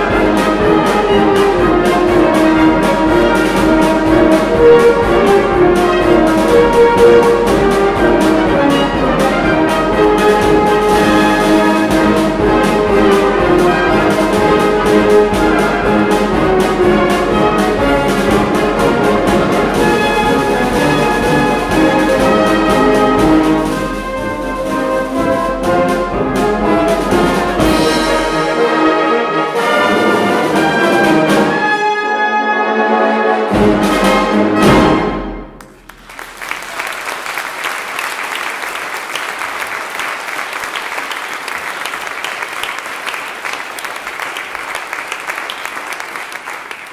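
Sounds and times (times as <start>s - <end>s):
heavy drum strokes: 0.0s - 28.6s
brass band playing a march: 0.0s - 46.9s
audience applauding: 35.6s - 46.9s.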